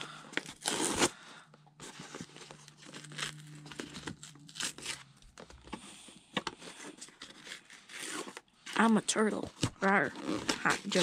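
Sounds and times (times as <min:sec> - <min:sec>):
cardboard tearing and rustling: 0:00.3 - 0:01.2, 0:01.8 - 0:05.8, 0:06.5 - 0:08.5, 0:09.5 - 0:11.0
cardboard ripping: 0:00.4 - 0:01.2, 0:01.8 - 0:05.0, 0:06.6 - 0:08.4.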